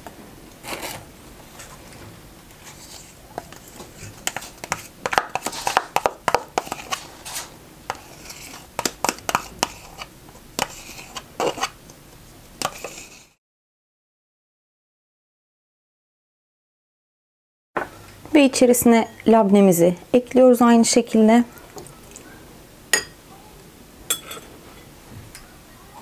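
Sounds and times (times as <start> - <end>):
spoon scraping plastic tub: 0.6 - 11.8, 12.6 - 13.4.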